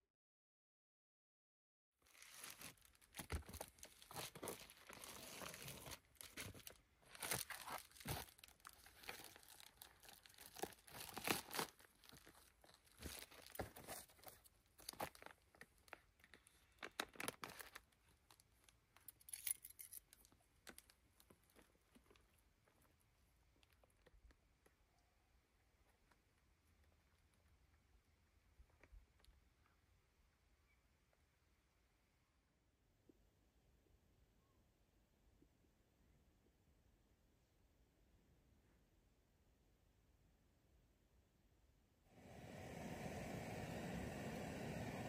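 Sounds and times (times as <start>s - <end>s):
material crinkling and rustling: 2.0s - 24.8s.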